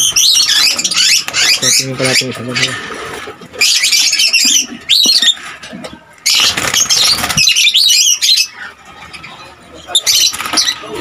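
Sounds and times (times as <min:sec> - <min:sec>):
lovebirds chattering: 0:00.0 - 0:11.0
wings flapping: 0:06.3 - 0:07.7, 0:10.1 - 0:11.0.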